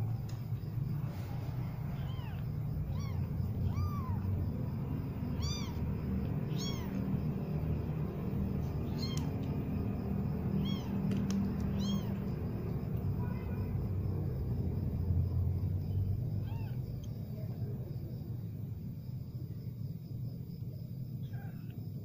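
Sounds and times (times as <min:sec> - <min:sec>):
steady low rumble: 0:00.0 - 0:21.2
kittens mewing: 0:00.9 - 0:07.5, 0:08.5 - 0:09.6, 0:10.4 - 0:12.4, 0:16.4 - 0:17.2, 0:21.2 - 0:21.8.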